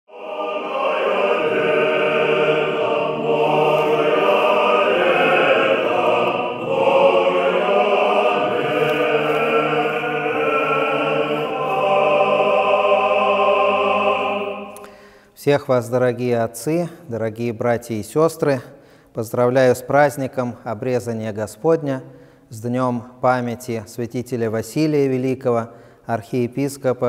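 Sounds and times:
choir singing held chords: 0.1 - 15.4.

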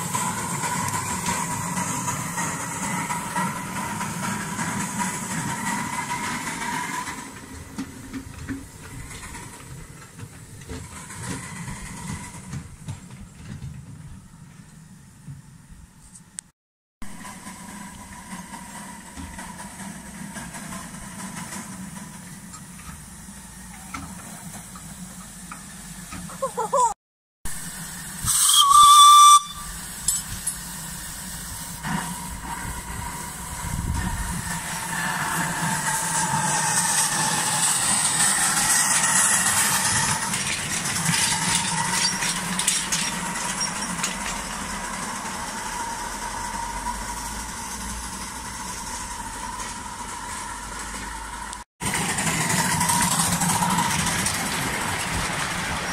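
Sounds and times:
steam locomotive hissing steam: 0.0 - 13.5, 17.1 - 26.9, 27.5 - 55.9
wheels clicking on track: 0.0 - 16.4, 17.0 - 27.0, 27.7 - 55.9
steam whistle: 28.1 - 30.3.

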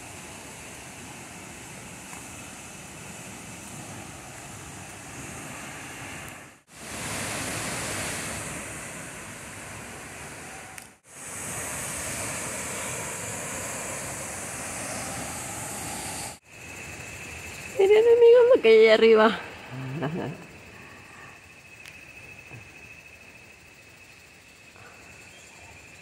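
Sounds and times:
waterfall rushing: 6.7 - 16.4.

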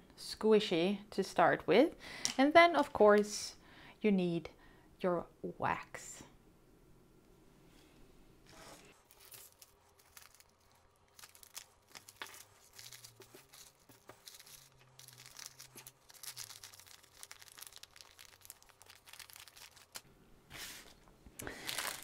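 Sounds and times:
plastic packaging crinkling: 9.0 - 20.0, 20.6 - 22.0
small clicks and crackles: 9.1 - 20.0.

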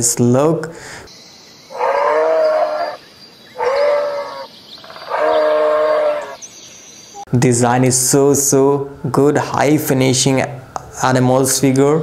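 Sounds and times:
steady background hiss: 0.0 - 12.0
deer calling: 1.7 - 6.4.

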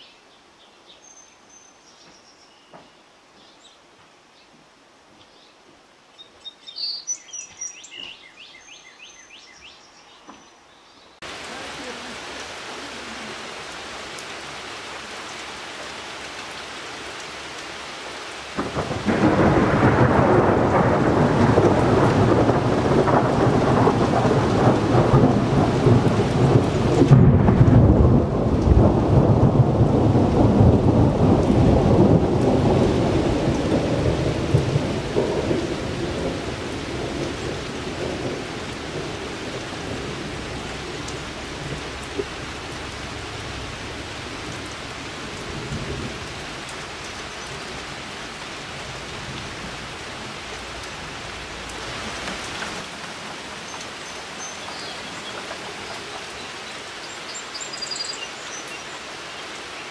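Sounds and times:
background hiss: 0.0 - 21.0
thunder rumbling: 18.6 - 53.2.

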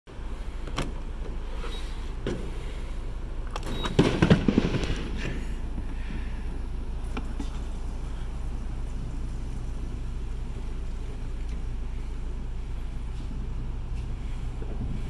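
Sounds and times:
low steady hum: 0.1 - 15.0.

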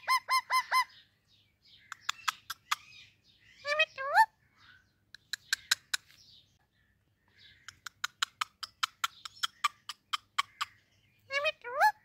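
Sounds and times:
parrot clicking: 7.7 - 10.5.

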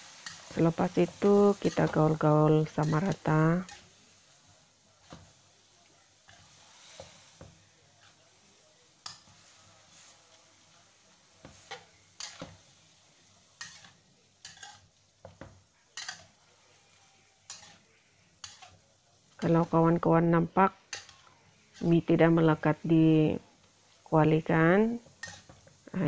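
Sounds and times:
faint sizzle: 0.0 - 26.0
metal spatula scraping a wok: 0.1 - 4.1, 6.2 - 8.2, 9.0 - 10.6, 11.4 - 12.7, 13.4 - 14.9, 16.0 - 20.0, 20.9 - 22.2, 25.0 - 25.8.

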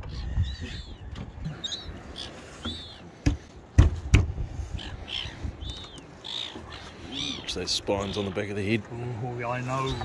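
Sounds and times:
birds calling: 0.0 - 3.8, 4.4 - 10.0
sharp knocks: 3.2 - 4.3
low wind rumble: 3.6 - 10.0.

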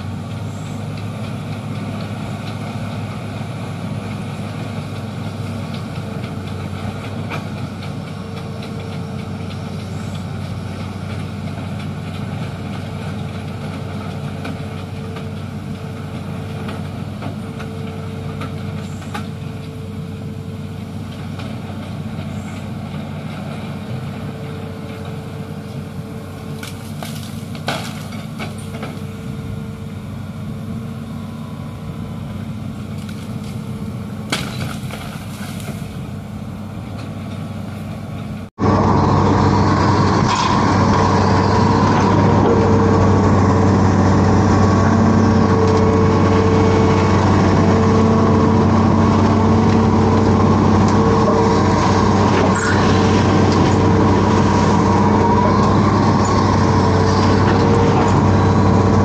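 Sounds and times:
excavator diesel engine running: 0.0 - 59.0
hydraulic whine: 35.8 - 59.0.

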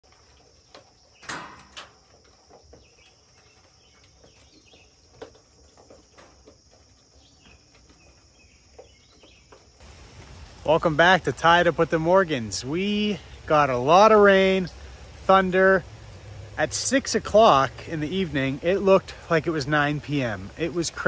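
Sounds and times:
soft knocks and rustles: 0.0 - 10.4
insect chirring: 0.0 - 11.1.

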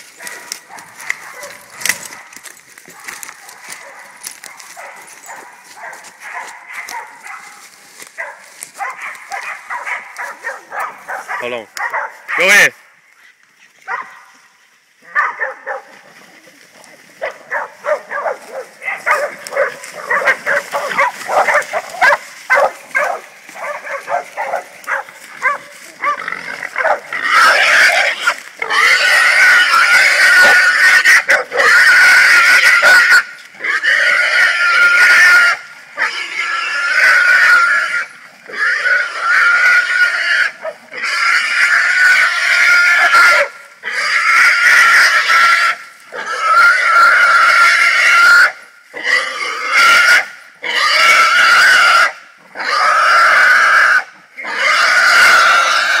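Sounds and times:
wild hog squealing: 18.5 - 56.0.

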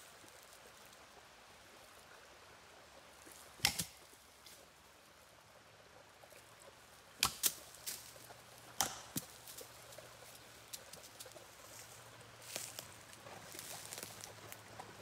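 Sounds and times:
faint stream running: 0.0 - 15.0
stick knocking on tree trunk: 7.2 - 7.6, 8.8 - 9.4.

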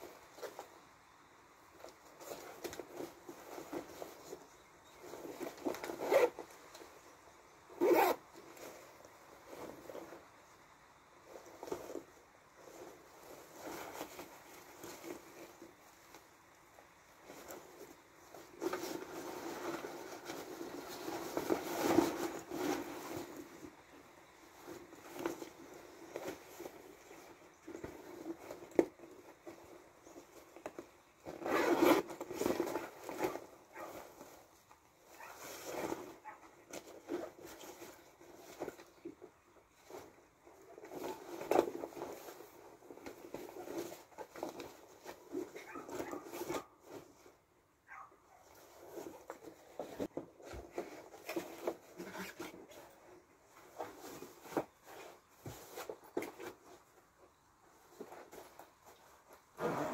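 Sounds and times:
zipper and straps rattling: 1.8 - 4.4, 5.0 - 6.9, 7.7 - 10.2, 11.2 - 15.8, 17.2 - 23.7, 24.5 - 39.2, 39.8 - 47.3, 47.9 - 56.8, 57.9 - 59.9
fabric bag rustling: 5.0 - 6.8, 7.7 - 10.2, 24.5 - 34.4, 58.0 - 59.9.

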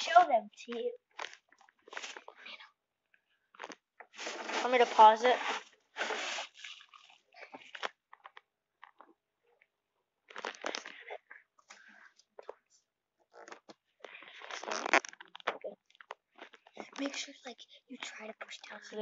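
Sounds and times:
rustling and crunching from handling: 1.1 - 2.4, 3.5 - 9.0.

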